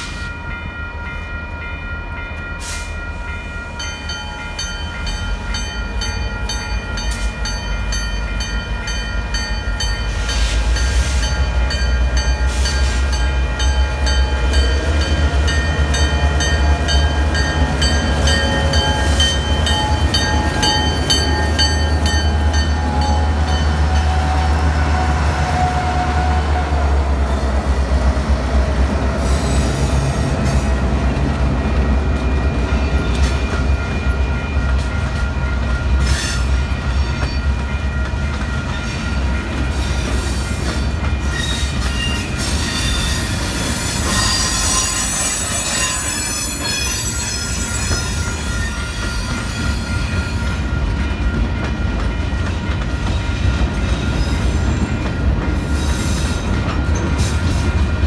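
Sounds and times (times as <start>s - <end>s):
diesel locomotives rumbling past: 0.0s - 58.0s
high wheel squeal: 41.2s - 50.4s.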